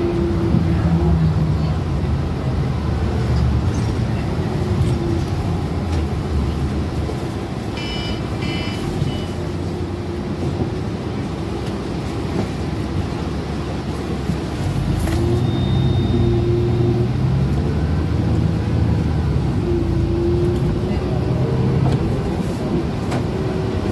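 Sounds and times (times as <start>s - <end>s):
bus engine and road noise: 0.0s - 23.9s
short electronic beeps: 7.8s - 9.4s, 15.4s - 16.4s.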